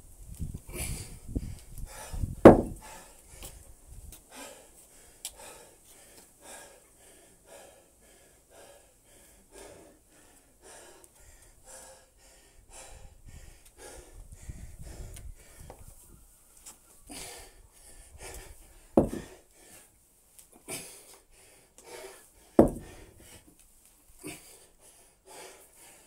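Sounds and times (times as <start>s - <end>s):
man panting hard: 0.7s - 3.6s, 4.2s - 16.1s, 17.0s - 20.0s, 20.6s - 23.5s, 24.2s - 26.0s
kettlebell thump on concrete: 2.4s - 2.8s, 19.0s - 19.3s, 22.6s - 23.0s.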